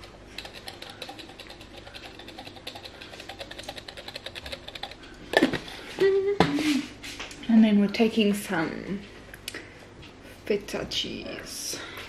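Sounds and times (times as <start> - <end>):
cheese shaker rattling: 0.0 - 5.7.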